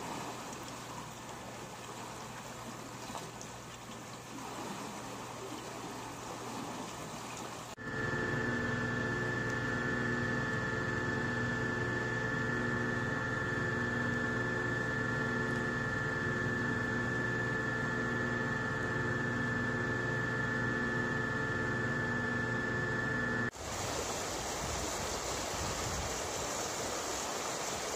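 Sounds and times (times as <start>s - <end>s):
rushing water: 0.0s - 7.8s, 23.5s - 27.9s
turbine generator hum and whine: 7.6s - 27.9s.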